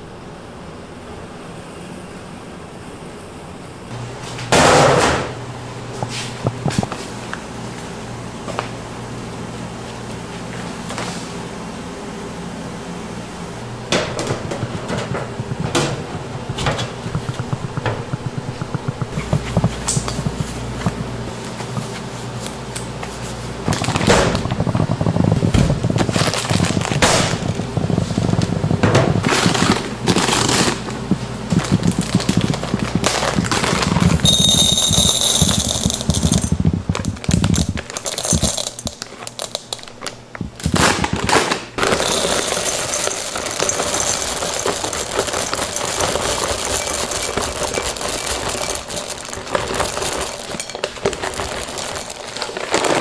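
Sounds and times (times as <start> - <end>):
knocks and clatter on hard surface: 13.9 - 21.1, 23.7 - 39.0
dense crackle: 14.2 - 22.0, 23.6 - 53.0.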